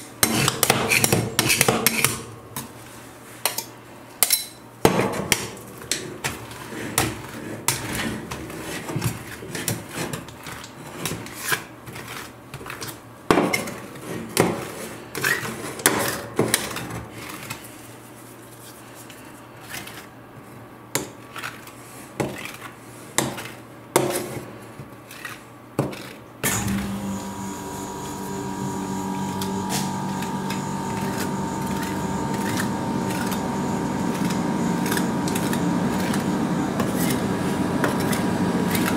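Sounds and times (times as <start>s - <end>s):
steady hum: 26.4s - 38.9s.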